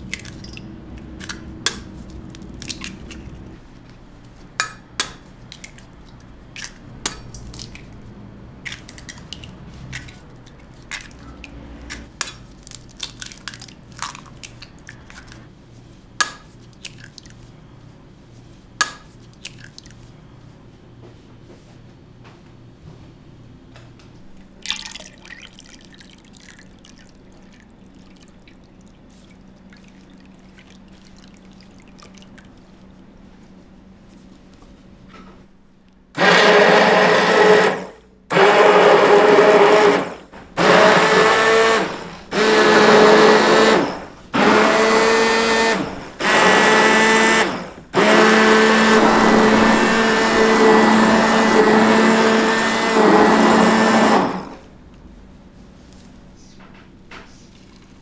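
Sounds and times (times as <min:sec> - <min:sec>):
low steady hum: 0:00.0 - 0:36.2
blender motor running: 0:36.2 - 0:54.6.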